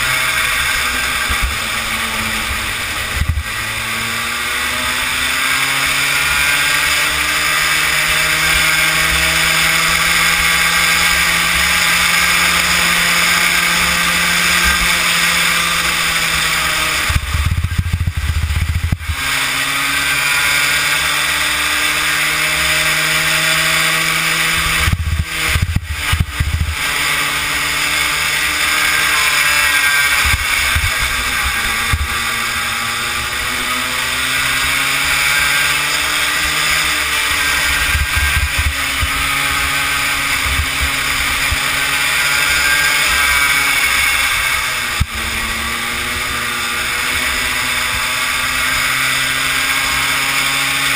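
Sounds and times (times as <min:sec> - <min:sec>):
kart engine at racing speed: 0:00.0 - 0:50.9.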